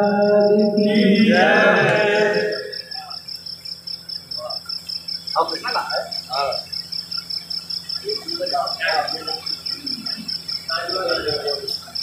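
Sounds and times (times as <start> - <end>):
person singing: 0.0 - 2.8
cricket chirping: 0.0 - 12.0.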